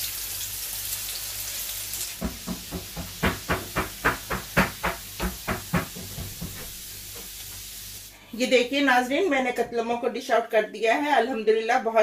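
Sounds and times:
sharp knocks: 2.2s - 6.8s.

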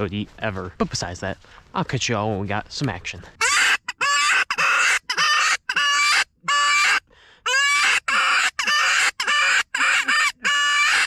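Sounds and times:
raspy rabbit distress squeals: 3.4s - 11.0s.

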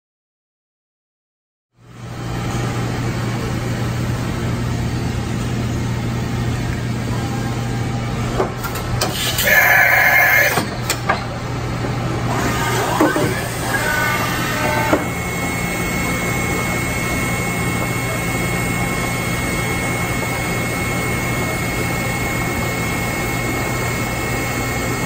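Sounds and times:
machinery humming: 1.9s - 25.0s
rising machine whines: 9.4s - 10.6s, 12.3s - 21.5s.

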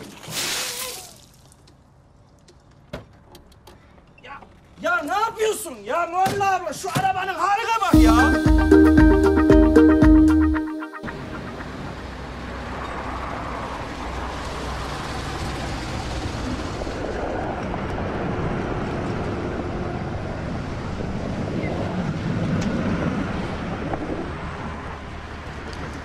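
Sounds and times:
road noise: 0.0s - 26.0s.

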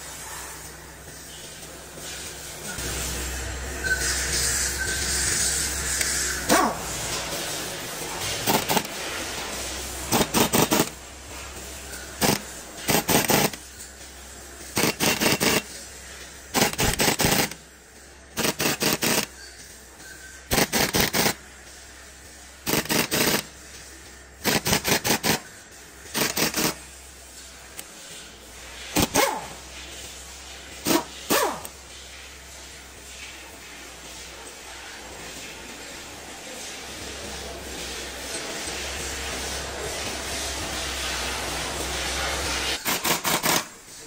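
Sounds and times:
pneumatic impact wrench hammering: 5.1s - 6.8s, 8.3s - 9.0s, 10.1s - 11.0s, 12.2s - 13.6s, 14.7s - 15.7s, 16.5s - 17.6s, 18.4s - 19.4s, 20.5s - 21.4s, 22.6s - 23.5s, 24.4s - 25.5s, 26.1s - 26.8s, 28.9s - 29.5s, 30.8s - 31.7s, 42.8s - 43.8s.

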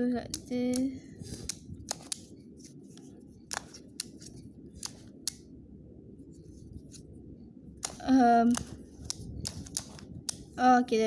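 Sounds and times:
plastic puzzle clicking: 0.2s - 2.3s, 3.5s - 5.4s, 7.8s - 10.5s
soft rubbing of plastic pieces: 0.3s - 5.4s, 7.8s - 10.7s.

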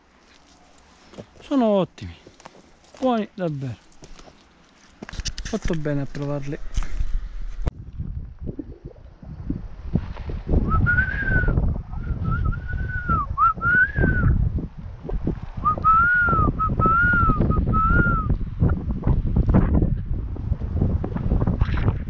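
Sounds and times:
footsteps crunching on loose rock: 0.2s - 7.8s
wind buffeting microphone: 5.2s - 22.0s
person whistling a tune: 10.7s - 14.3s, 15.6s - 18.3s.

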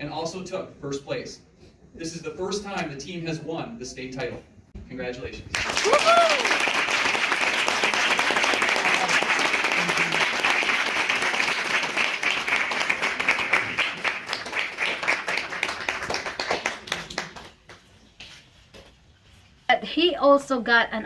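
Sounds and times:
audience applauding: 5.5s - 17.8s.

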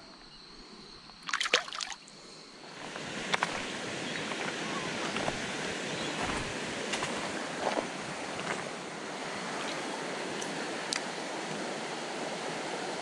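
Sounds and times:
fish splashing in shallow water: 1.2s - 2.1s
steady rushing hiss: 2.1s - 13.0s.

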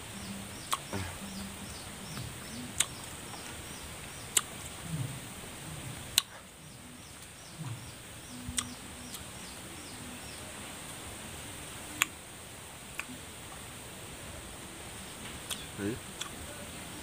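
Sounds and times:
small bird chirping: 0.0s - 10.6s, 15.0s - 16.3s.

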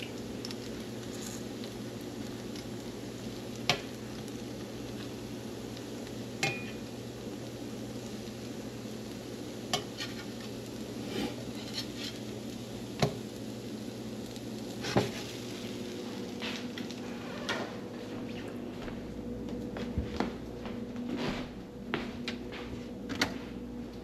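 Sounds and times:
patties sizzling in a frying pan: 0.0s - 17.0s
metal spatula scraping a pan: 9.8s - 10.3s, 11.1s - 12.2s.

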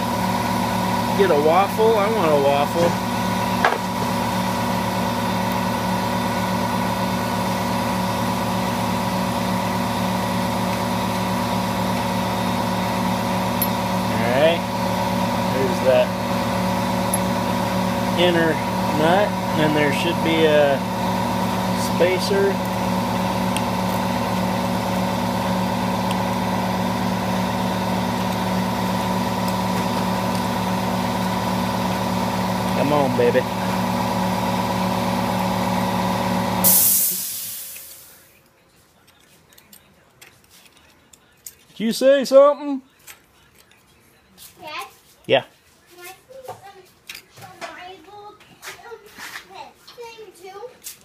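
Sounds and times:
machine humming: 0.0s - 38.2s.

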